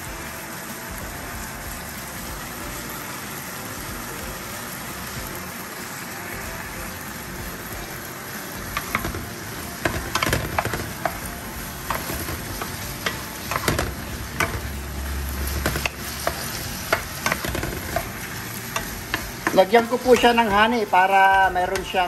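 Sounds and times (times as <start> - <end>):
meat sizzling in a frying pan: 0.0 - 22.0
spatula scraping a pan: 8.7 - 20.8.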